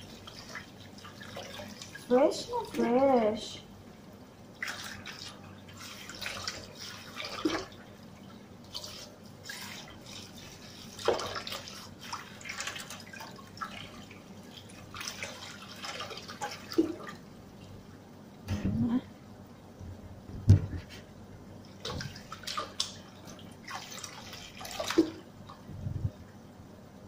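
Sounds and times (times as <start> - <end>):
tap water running and splashing: 0.0 - 3.4, 4.6 - 17.8, 21.7 - 25.7
water drips: 21.7 - 25.6.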